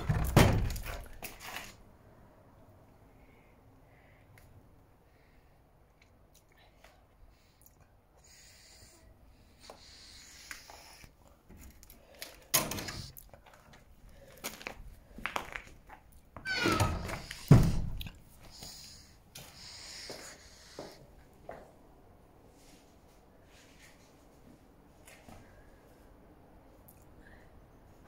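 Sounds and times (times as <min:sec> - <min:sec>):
knocks and bumps: 0:00.0 - 0:01.1.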